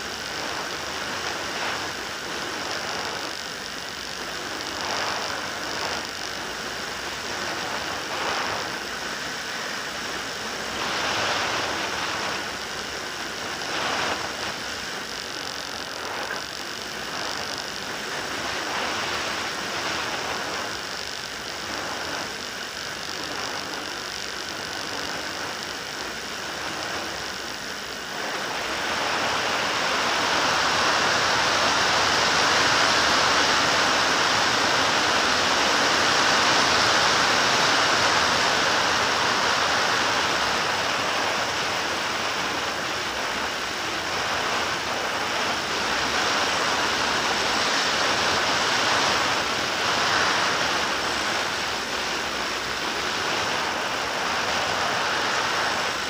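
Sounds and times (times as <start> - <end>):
electric motor and propeller whirring: 0.0 - 56.0
wind rushing over microphone: 0.0 - 56.0.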